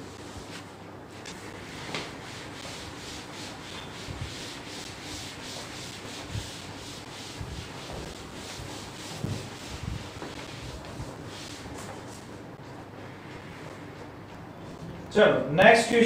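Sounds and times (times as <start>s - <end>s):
duster rubbing on chalkboard: 1.4s - 12.3s.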